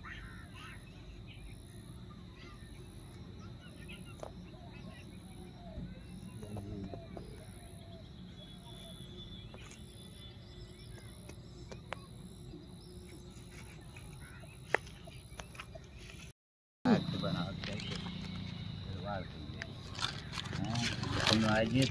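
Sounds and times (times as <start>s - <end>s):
faint bird calls: 0.0s - 10.2s, 10.9s - 16.0s
insects trilling: 0.0s - 15.9s, 16.9s - 21.9s
pulsing insect: 0.6s - 15.3s.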